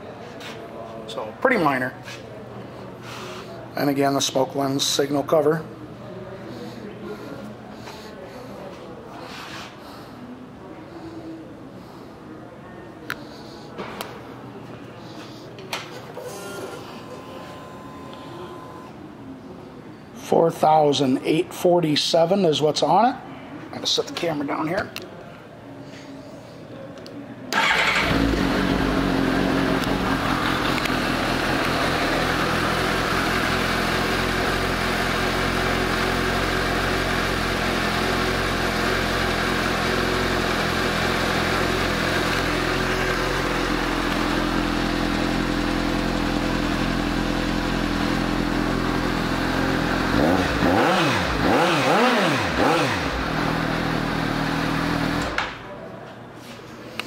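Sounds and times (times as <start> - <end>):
motorcycle engine idling and revving: 27.6 - 55.4.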